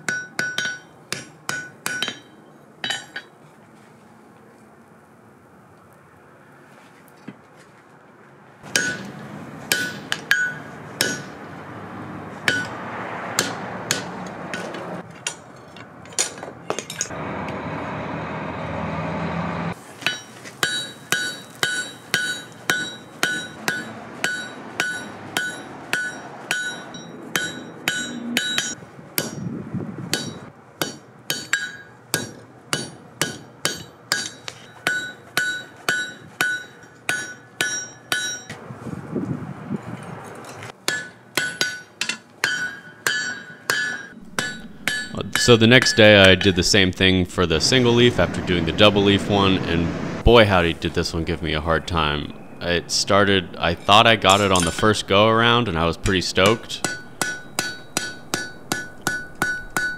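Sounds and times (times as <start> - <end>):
hammer striking steel on anvil: 0.0 - 3.3, 8.6 - 11.5, 12.4 - 12.8, 13.4 - 15.5, 20.0 - 29.4, 30.1 - 38.6, 40.8 - 46.7, 51.3 - 59.9
steady rushing noise: 44.2 - 59.9.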